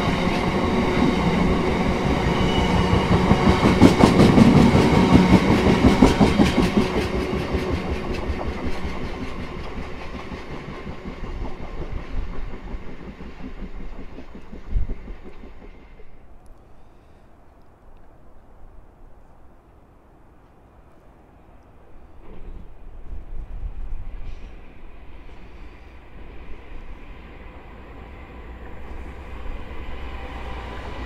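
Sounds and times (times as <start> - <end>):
freight train wheels clicking: 0.0 - 16.6.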